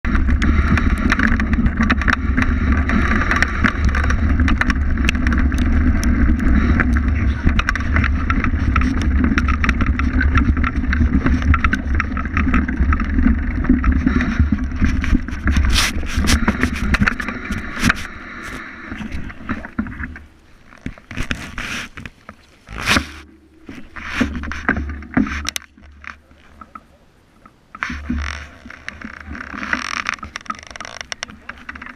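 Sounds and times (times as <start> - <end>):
wind rushing over microphone: 0.0 - 20.3
bike rumbling and rattling: 0.0 - 26.8, 27.5 - 31.9
clicks and knocks from stones: 0.1 - 31.9.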